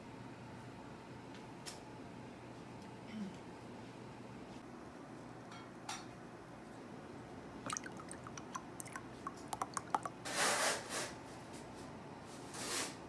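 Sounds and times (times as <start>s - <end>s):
drink pouring into a mug: 7.7s - 10.2s
liquid dripping and plopping: 7.7s - 10.2s.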